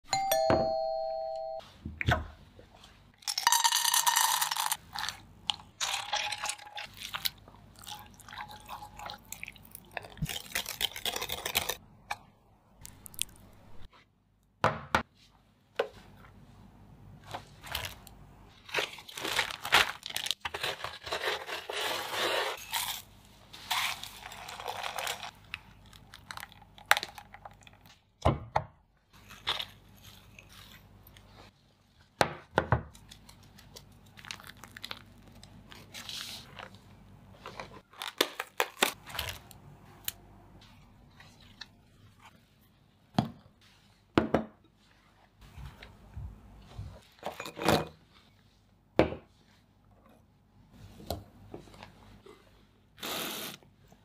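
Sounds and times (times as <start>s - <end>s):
short ringing chime: 0.1s - 1.6s
food crunching and crackling: 4.3s - 11.8s, 12.8s - 13.9s, 17.6s - 28.0s, 29.2s - 31.4s, 33.0s - 36.7s.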